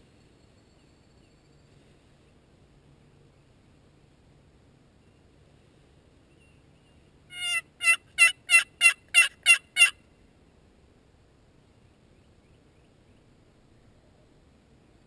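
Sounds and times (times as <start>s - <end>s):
turkey yelps: 7.3s - 10.0s.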